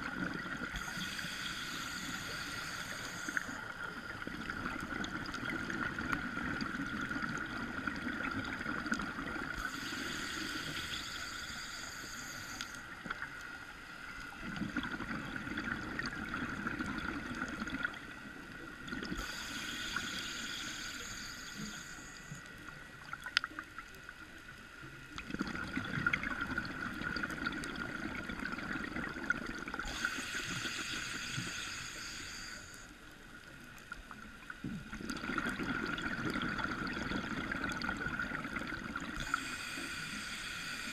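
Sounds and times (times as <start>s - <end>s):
regulator hissing inhales: 0.8s - 4.0s, 9.6s - 13.0s, 19.2s - 22.5s, 29.8s - 33.0s, 39.2s - 40.9s.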